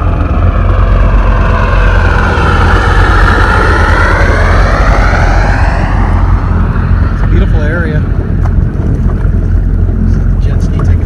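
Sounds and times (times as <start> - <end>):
jet ski engine whine: 0.0 - 11.0.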